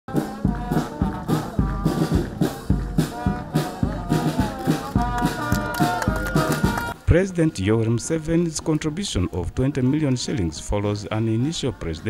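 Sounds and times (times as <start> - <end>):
brass music with drum beat: 0.1 - 7.0.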